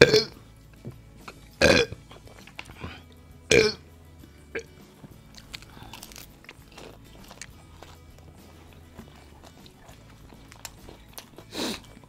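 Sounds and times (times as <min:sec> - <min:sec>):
man burping loudly: 0:00.0 - 0:00.4, 0:01.6 - 0:02.0, 0:02.8 - 0:03.8
chewing and biting clicks: 0:02.1 - 0:03.2, 0:04.8 - 0:12.0.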